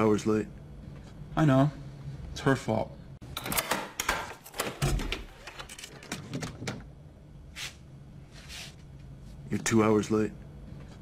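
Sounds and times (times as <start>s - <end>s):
door lock clicks and rattles: 3.3s - 6.9s.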